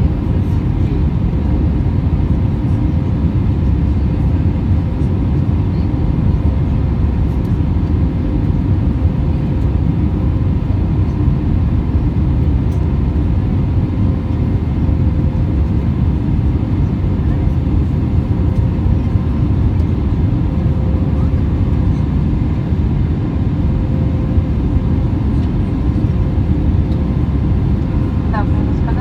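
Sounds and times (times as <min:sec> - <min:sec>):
jet engine cabin rumble: 0:00.0 - 0:29.0.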